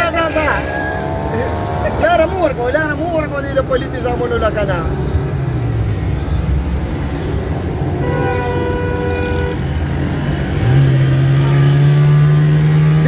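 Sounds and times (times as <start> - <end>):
road and engine noise in car: 0.0 - 13.0
horn toot: 8.0 - 10.0.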